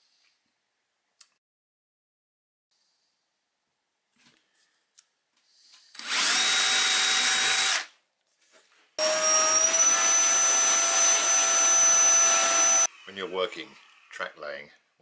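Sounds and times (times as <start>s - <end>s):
cordless drill drilling: 5.9s - 7.9s, 9.0s - 12.9s
handheld vacuum whining: 5.9s - 7.9s, 9.0s - 12.9s.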